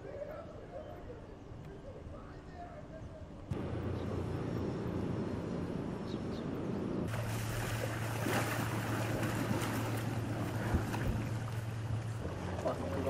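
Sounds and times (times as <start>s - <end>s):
wind: 0.0s - 13.0s
boat engine hum: 3.5s - 13.0s
floodwater: 7.0s - 13.0s
surf: 7.1s - 13.0s.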